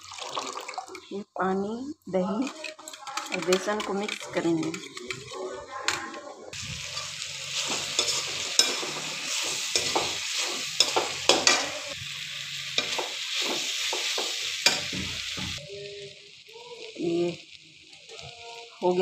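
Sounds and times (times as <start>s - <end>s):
vegetables sizzling in oil: 0.0s - 0.6s, 6.5s - 19.0s
spatula scraping pan: 2.4s - 6.0s, 6.6s - 12.0s.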